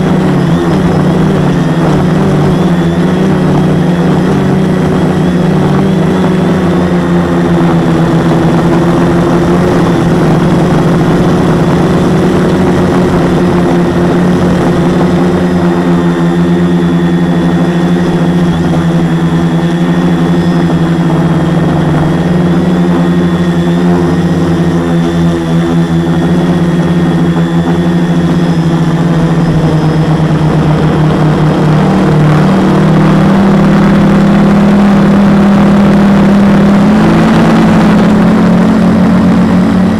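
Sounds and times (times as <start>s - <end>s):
drone motors droning: 0.0s - 39.9s.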